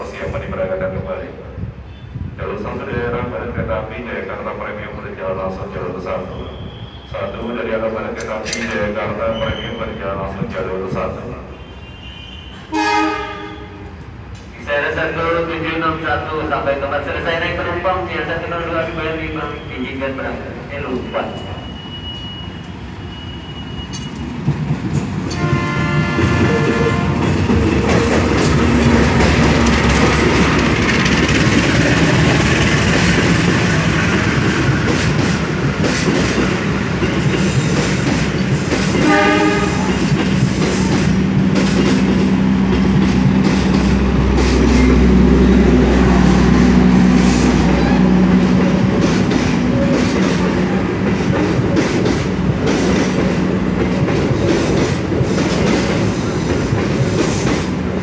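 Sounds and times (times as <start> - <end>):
train wheels clattering over rails: 23.8 - 58.0.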